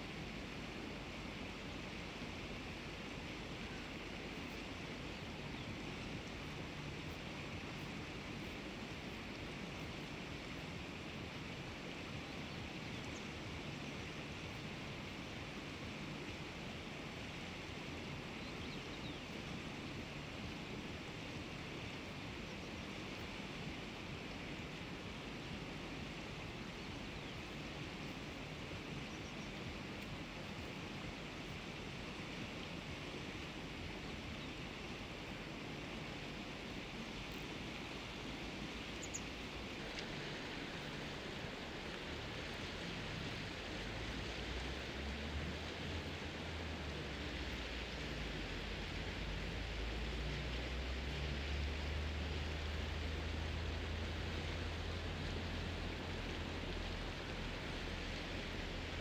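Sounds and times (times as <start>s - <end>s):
meadow ambience hiss: 0.0s - 59.0s
faint high chirp: 39.0s - 39.3s.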